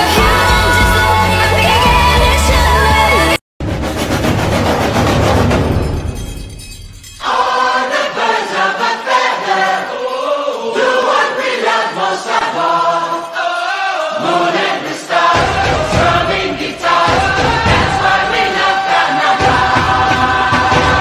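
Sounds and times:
choir singing with music: 0.0s - 3.4s, 7.2s - 21.0s
deep bass: 0.0s - 3.4s.

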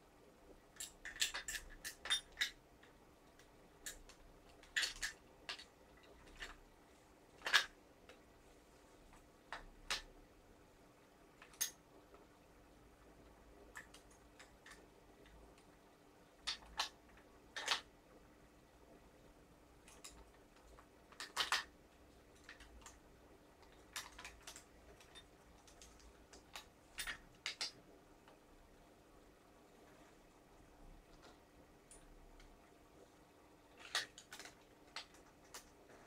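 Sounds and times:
metal tools clicking and clinking: 0.8s - 2.6s.

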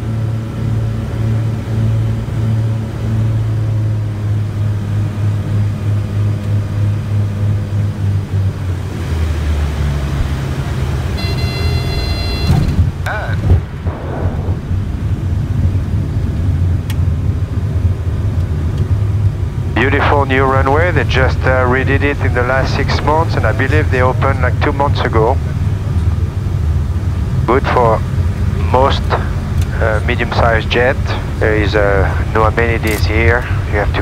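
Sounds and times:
piston engines droning: 0.0s - 34.0s
brief high tone: 11.2s - 12.7s.

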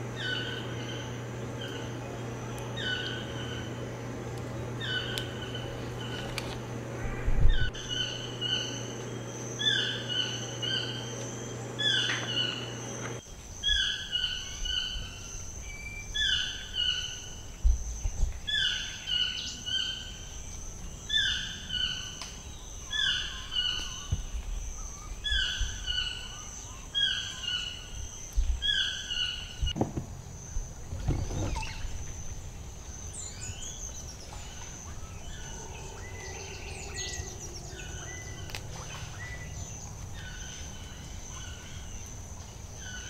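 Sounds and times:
bird calling: 0.0s - 17.5s, 30.8s - 43.0s
low steady hum: 0.0s - 43.0s.

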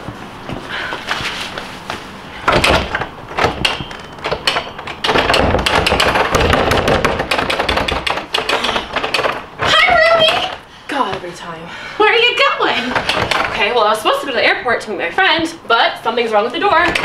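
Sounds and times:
wooden door rattling: 2.4s - 10.6s, 12.7s - 14.0s, 16.7s - 17.0s.

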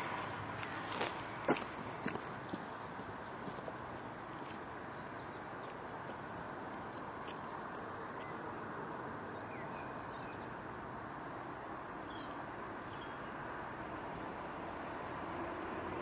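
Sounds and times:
distant diesel locomotive: 0.0s - 16.0s.

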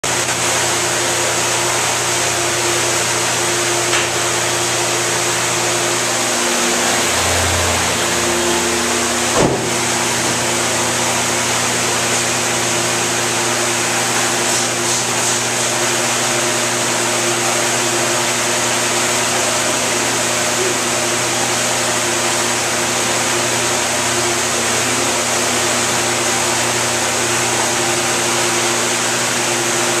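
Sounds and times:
exhaust fan rushing air: 0.0s - 30.0s
electric motor hum: 0.1s - 30.0s
short knock: 9.4s - 9.8s.

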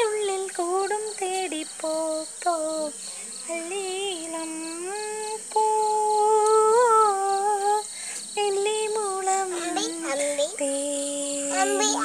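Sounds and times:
crickets chirping: 0.0s - 12.0s
woman humming: 11.3s - 12.0s.

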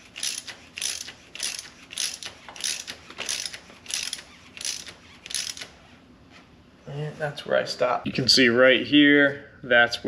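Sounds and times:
hand ratchet clicking: 0.0s - 5.7s.

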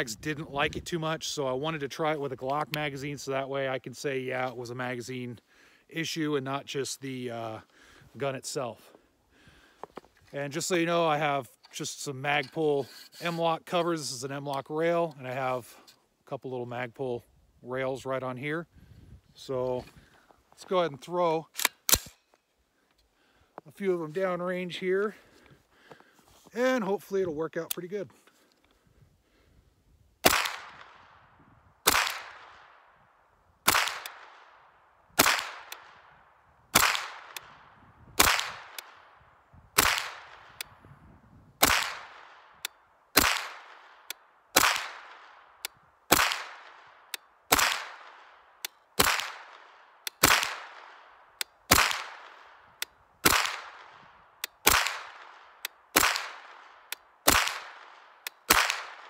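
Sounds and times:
carbine gunshots with echo: 30.2s - 31.2s, 31.8s - 32.9s, 33.6s - 39.2s, 39.8s - 40.7s, 41.6s - 59.0s.

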